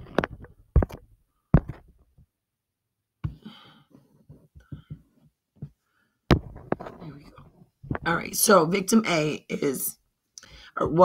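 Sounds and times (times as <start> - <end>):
short breath: 3.3 - 5.1, 10.4 - 10.8.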